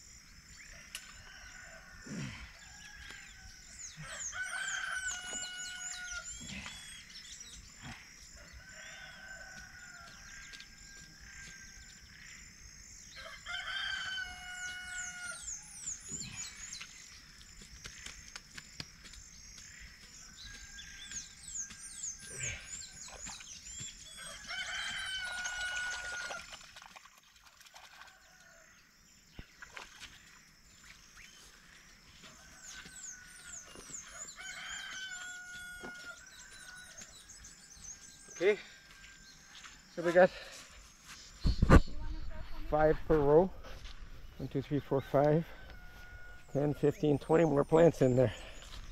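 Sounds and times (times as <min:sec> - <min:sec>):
rooster crowing: 0:01.2 - 0:06.3, 0:08.4 - 0:11.6, 0:13.1 - 0:15.5, 0:24.1 - 0:26.5, 0:32.3 - 0:37.2, 0:45.0 - 0:47.2.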